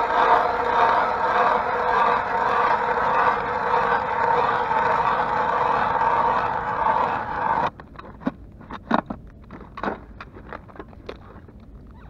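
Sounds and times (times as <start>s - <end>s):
ice auger grinding into ice: 0.0s - 7.7s.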